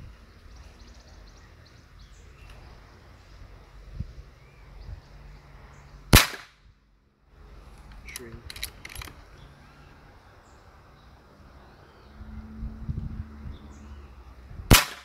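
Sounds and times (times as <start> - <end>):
air rifle shot: 6.1 - 6.6, 14.7 - 15.0.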